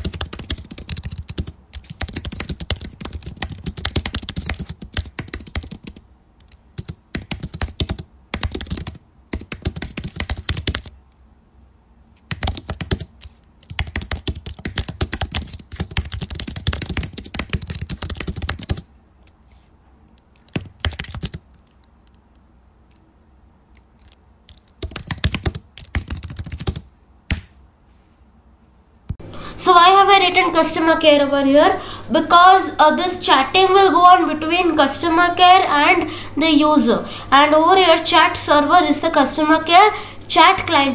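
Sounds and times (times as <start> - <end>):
keyboard typing: 0.0 - 11.2, 12.1 - 19.4, 20.0 - 23.0, 23.7 - 27.6.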